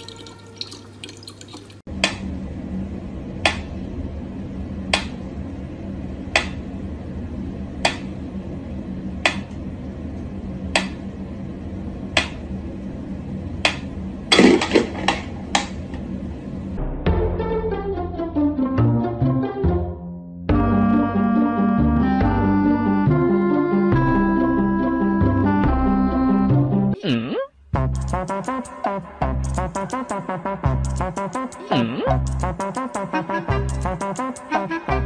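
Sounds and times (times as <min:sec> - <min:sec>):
low room hum: 0:00.0 - 0:16.8
clattering noise: 0:14.3 - 0:16.0.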